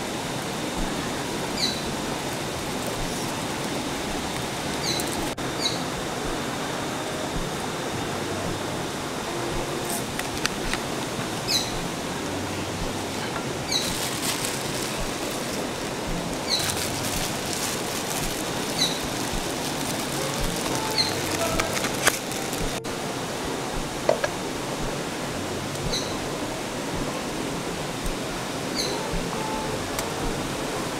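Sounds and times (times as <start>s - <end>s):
river water rushing: 0.0s - 30.9s
bird chirping: 1.6s - 1.9s, 4.7s - 5.8s, 13.2s - 17.6s, 18.2s - 19.3s, 20.2s - 22.8s.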